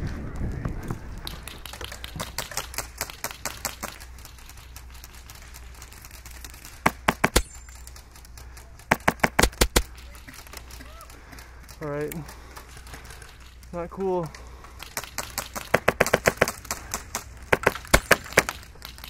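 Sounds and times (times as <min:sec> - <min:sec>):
faint rapid clicking: 0:00.2 - 0:19.0
airsoft rifle shots: 0:06.8 - 0:07.6, 0:08.9 - 0:10.0, 0:14.9 - 0:18.7.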